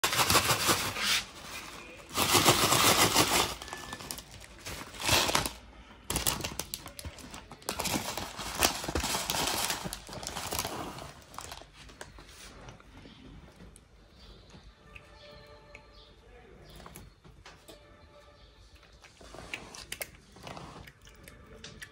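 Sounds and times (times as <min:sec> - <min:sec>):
plastic packet crinkling: 0:00.0 - 0:12.2.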